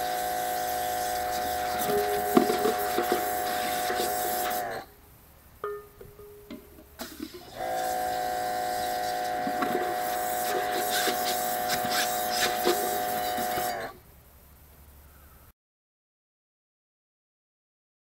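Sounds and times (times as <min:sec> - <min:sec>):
pressure washer humming: 0:00.0 - 0:04.9, 0:06.5 - 0:14.0
water spray spattering into pot: 0:07.0 - 0:13.8.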